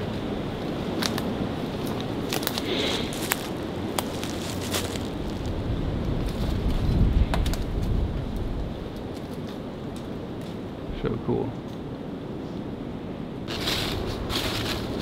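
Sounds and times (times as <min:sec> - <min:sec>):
wind rumble on microphone: 0:00.0 - 0:15.0
footsteps crunching dry leaves: 0:01.8 - 0:06.9, 0:13.5 - 0:15.0.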